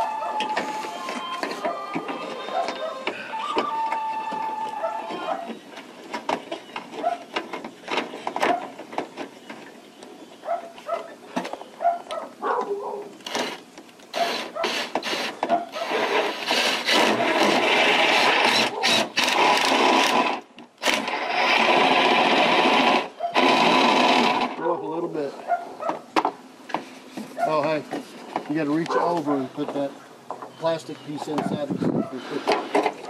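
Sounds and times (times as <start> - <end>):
cordless drill driving screw: 13.2 - 24.6.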